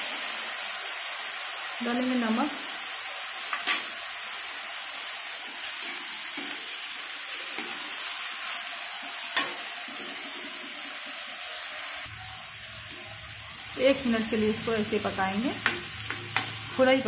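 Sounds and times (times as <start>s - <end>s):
vegetables sizzling in oil: 0.0s - 17.0s.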